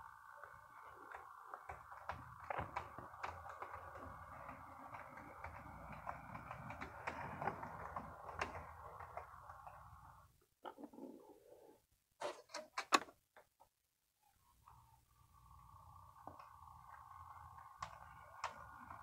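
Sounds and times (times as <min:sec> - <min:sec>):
model train motor whine: 0:00.0 - 0:10.3, 0:14.6 - 0:19.0
wheels clicking over rail joints: 0:00.0 - 0:10.3, 0:15.6 - 0:19.0.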